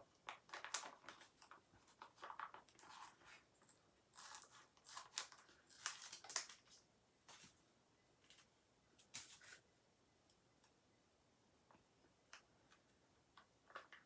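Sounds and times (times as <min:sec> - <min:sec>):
plastic crinkling: 0:00.2 - 0:07.5
scissors snipping plastic: 0:04.1 - 0:06.8.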